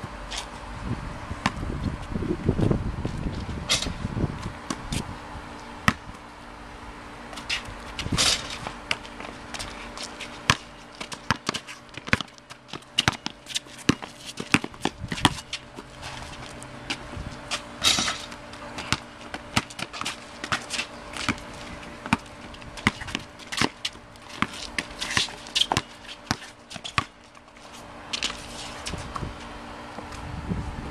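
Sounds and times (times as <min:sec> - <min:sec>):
basketball bouncing on concrete: 0:01.4 - 0:05.0, 0:05.8 - 0:06.2, 0:07.3 - 0:27.5, 0:28.1 - 0:29.4
sneakers stepping: 0:07.3 - 0:30.3.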